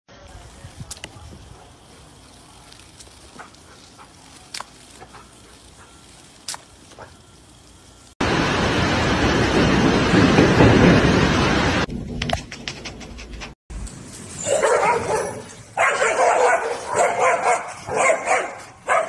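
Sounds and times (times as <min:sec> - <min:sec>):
rain on a metal roof: 0:08.2 - 0:12.2.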